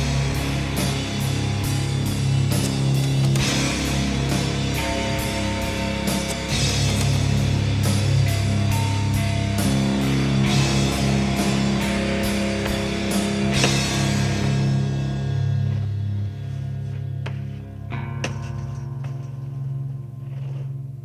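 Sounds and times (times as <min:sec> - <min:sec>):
steady drum beat: 0:00.0 - 0:16.2
rock music with guitar: 0:00.0 - 0:21.0.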